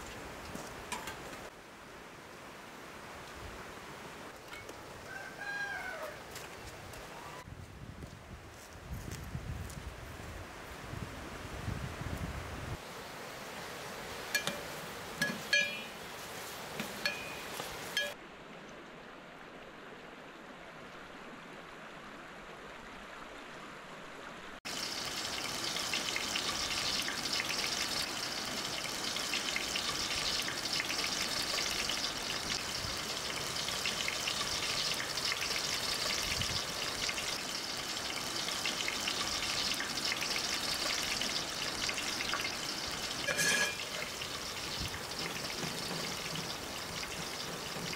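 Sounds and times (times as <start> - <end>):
onions sizzling in hot oil: 14.1 - 18.2, 24.7 - 47.9
metal spoon clinking on pot: 14.3 - 16.0, 16.8 - 18.2, 43.2 - 44.0.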